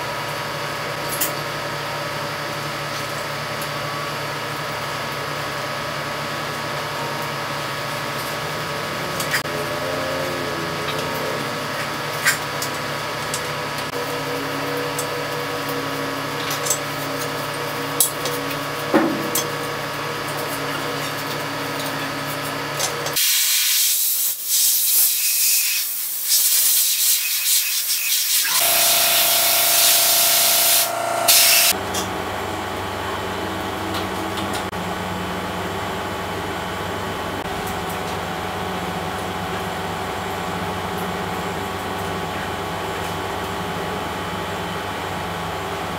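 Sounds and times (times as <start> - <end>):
steady machine hum: 0.0 - 23.2, 28.5 - 45.9
loud hissing spray: 23.2 - 31.7.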